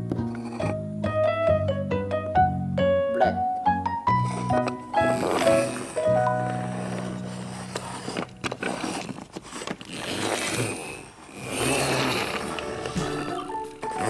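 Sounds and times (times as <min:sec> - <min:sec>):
plastic toy wheels rolling and scraping: 0:00.1 - 0:00.8, 0:04.2 - 0:14.0.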